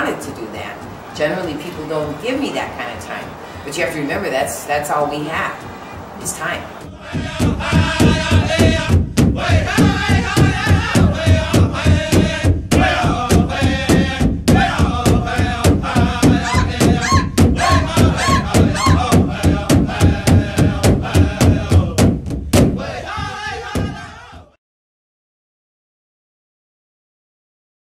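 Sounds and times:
steady drumbeat: 6.4s - 24.6s
group chanting: 6.7s - 22.0s, 22.6s - 24.6s.

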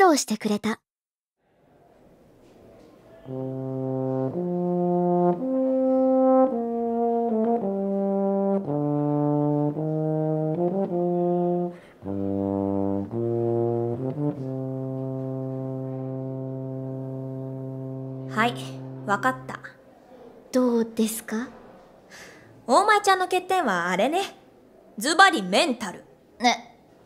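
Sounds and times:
euphonium melody: 3.1s - 19.8s.

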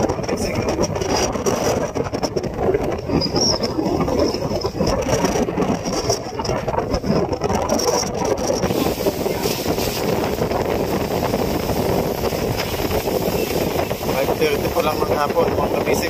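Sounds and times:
boat engine rumbling: 0.0s - 16.0s
wind buffeting microphone: 0.0s - 16.0s.

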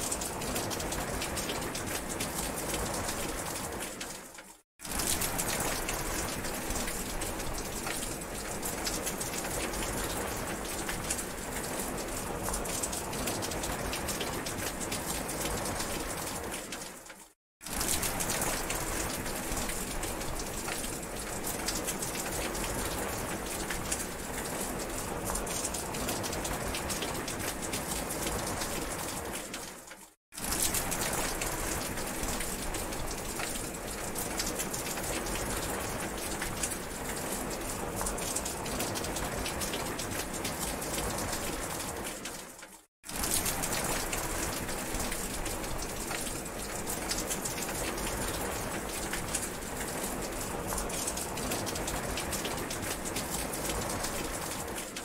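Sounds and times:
steady rain falling: 0.0s - 55.0s
raindrops ticking: 30.8s - 55.0s.

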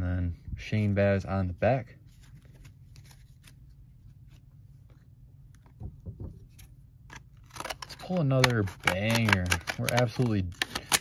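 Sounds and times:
low steady background hum: 0.0s - 11.0s
trading cards being shuffled: 6.5s - 11.0s.

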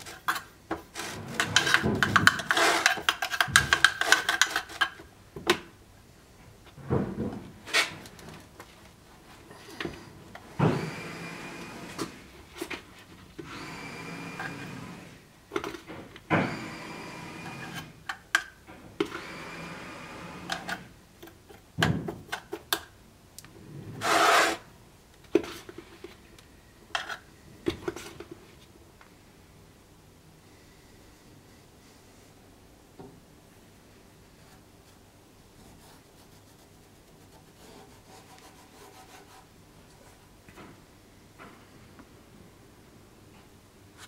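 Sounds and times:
tool clicks and knocks: 0.3s - 5.6s
hand tool rasping wood: 0.9s - 4.8s, 24.0s - 24.6s.

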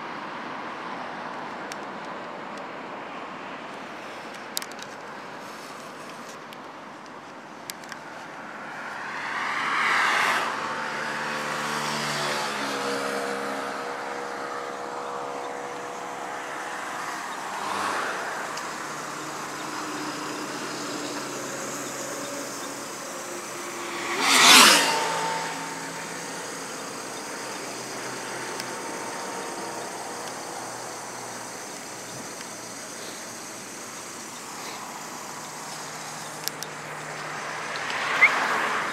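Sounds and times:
cars and trucks passing: 0.0s - 38.9s.

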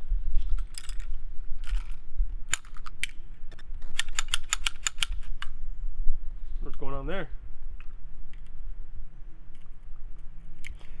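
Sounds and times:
pistol slide metallic clicks: 3.9s - 5.6s.

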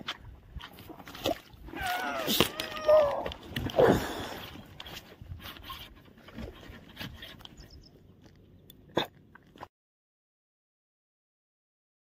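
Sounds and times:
camera gear handling scrapes: 4.4s - 7.8s.

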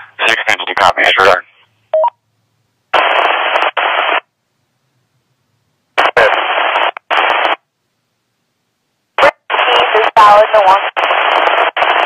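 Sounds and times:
radio static bursts: 3.0s - 4.3s, 6.0s - 7.6s, 9.2s - 12.0s.

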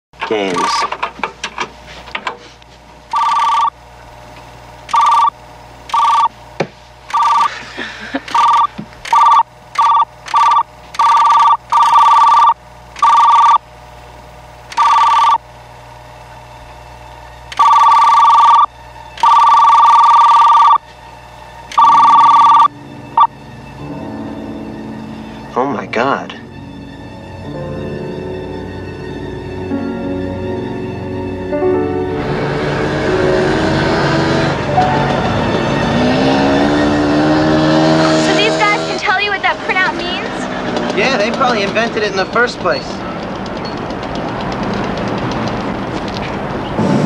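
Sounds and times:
warbling two-tone electronic beep: 21.8s - 23.3s.

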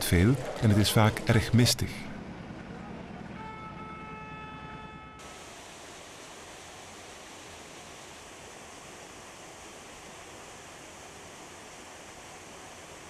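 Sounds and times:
waterfall rushing: 5.2s - 13.0s.

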